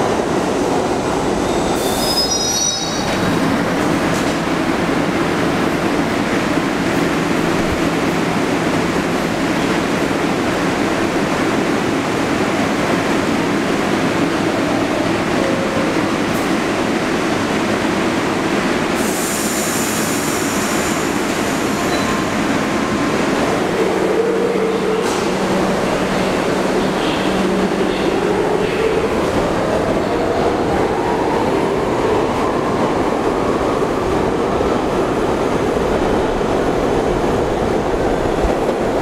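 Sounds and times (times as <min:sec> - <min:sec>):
subway train wheels rumbling: 0:00.0 - 0:39.0
high-pitched wheel squeal: 0:01.8 - 0:03.2.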